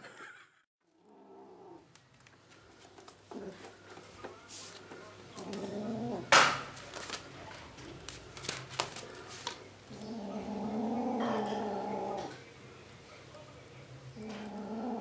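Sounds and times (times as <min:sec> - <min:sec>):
kitten growling low: 0:00.9 - 0:01.9, 0:03.3 - 0:03.7, 0:05.3 - 0:06.4, 0:09.9 - 0:12.4, 0:14.2 - 0:15.0.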